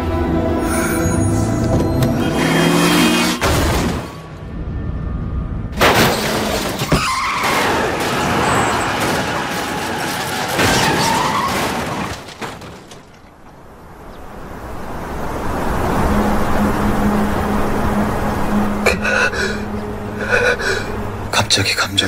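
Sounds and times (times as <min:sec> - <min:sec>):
tyre screech: 0:06.8 - 0:08.9.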